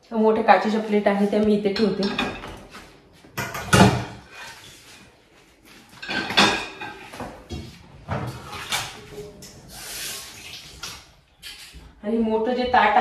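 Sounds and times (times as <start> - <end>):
plates clattering in dishwasher racks: 1.6 - 4.6, 5.9 - 9.4.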